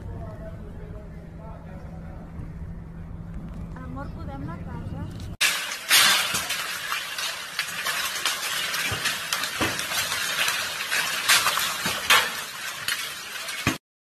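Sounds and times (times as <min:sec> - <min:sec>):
hailstones clattering: 0:05.4 - 0:13.8.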